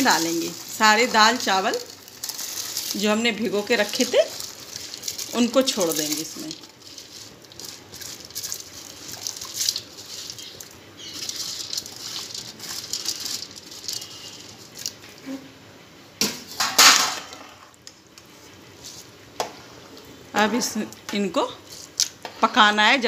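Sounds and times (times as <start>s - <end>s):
lentils and rice splashing into water: 0.0s - 15.1s.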